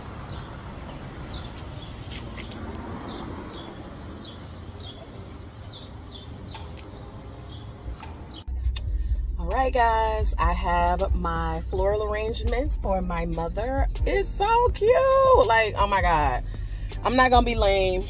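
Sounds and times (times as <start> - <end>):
low outdoor rumble: 6.4 - 18.0.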